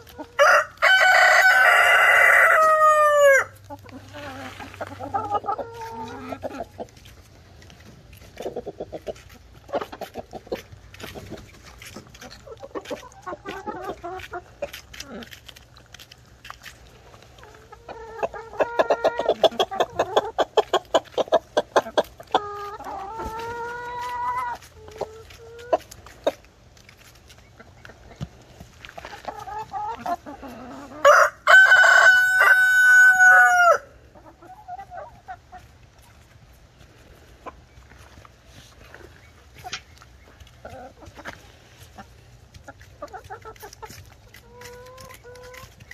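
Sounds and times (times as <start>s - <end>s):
hens clucking: 0.0s - 45.9s
rooster crowing: 0.4s - 3.6s, 31.0s - 33.9s
beaks pecking into watermelon: 3.7s - 30.6s, 39.0s - 45.9s.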